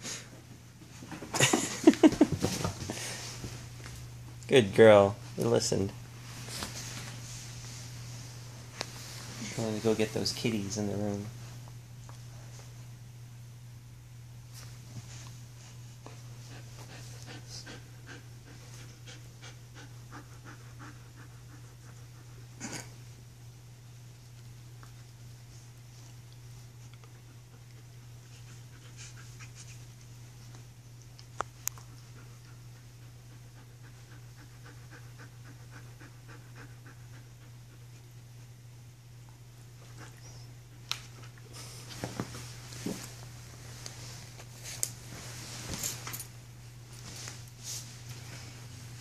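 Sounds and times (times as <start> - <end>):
steady low hum: 0.0 - 49.0
dog panting: 16.1 - 22.6, 26.8 - 29.8, 31.8 - 38.1.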